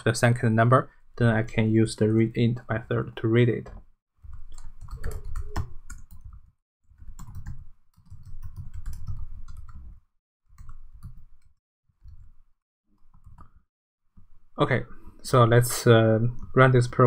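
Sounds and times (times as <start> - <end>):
keyboard typing clicks: 3.6 - 6.4, 7.1 - 9.9.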